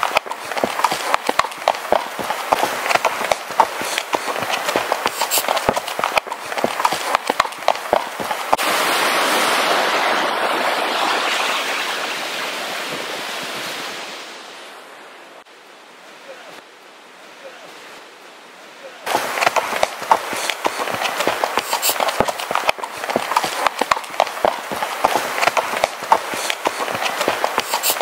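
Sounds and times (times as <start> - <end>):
horse hooves clopping: 0.0 - 8.6, 19.1 - 28.0
fast creek rushing: 0.0 - 28.0.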